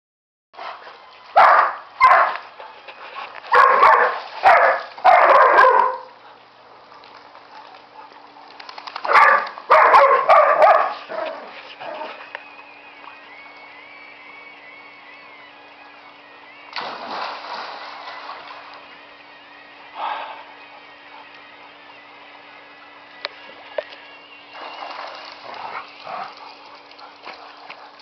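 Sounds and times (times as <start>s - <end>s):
dog barking: 1.4s - 2.4s, 3.5s - 6.1s, 9.1s - 12.1s.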